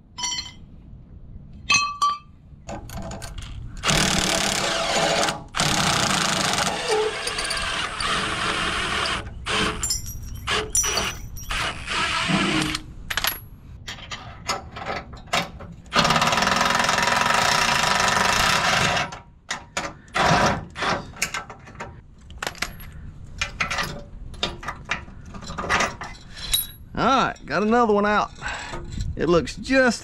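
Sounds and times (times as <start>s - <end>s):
metal clinks of wrenches: 6.9s - 8.2s, 9.0s - 11.8s, 22.4s - 29.4s.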